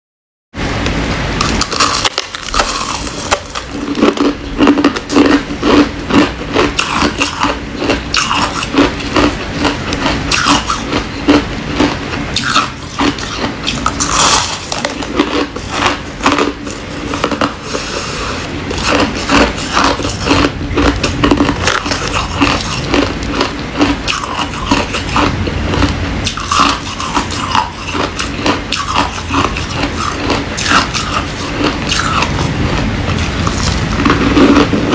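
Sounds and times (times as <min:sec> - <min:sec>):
chewing crushed ice: 0:01.4 - 0:34.9.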